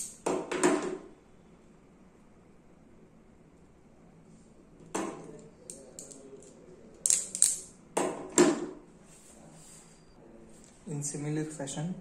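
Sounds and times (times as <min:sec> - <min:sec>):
handling of tool and wire: 0:05.7 - 0:07.7.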